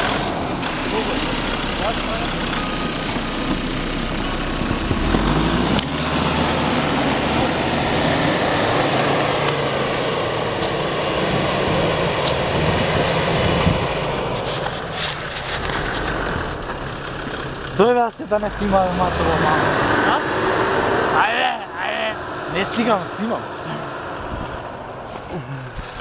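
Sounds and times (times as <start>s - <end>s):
engine running under load: 0.0s - 26.0s
tyres churning snow: 0.0s - 26.0s.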